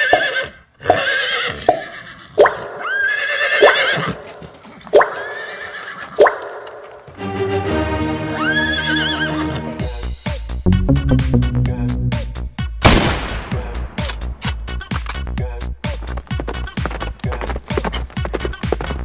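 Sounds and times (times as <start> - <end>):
horse whinnying: 0.0 - 4.4, 5.0 - 6.2, 8.3 - 9.7
music with steady notes: 9.4 - 12.6.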